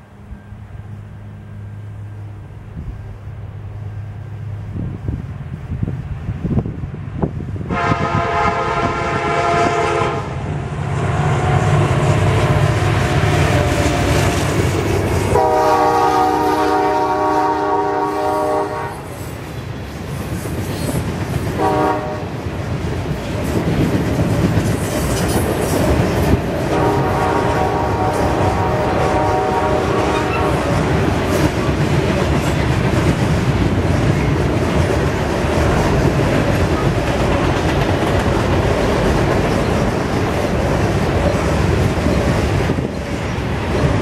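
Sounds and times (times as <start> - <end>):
locomotives rumbling past: 0.0 - 44.0
locomotive horn blasts: 7.7 - 10.4, 15.3 - 19.1, 21.6 - 22.3, 26.7 - 30.7
train wheels clickety-clack: 12.1 - 44.0.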